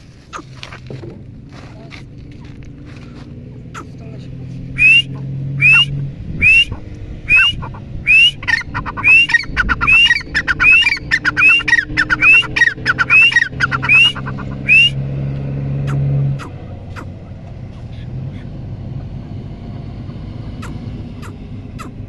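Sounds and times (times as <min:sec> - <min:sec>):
bird chattering notes: 0:03.6 - 0:15.0, 0:15.8 - 0:18.6, 0:20.6 - 0:22.0
francolin shrill rising calls: 0:04.8 - 0:15.0.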